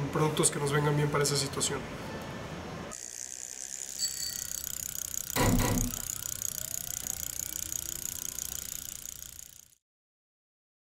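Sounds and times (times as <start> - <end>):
fast mechanical ticking: 3.0 - 9.8.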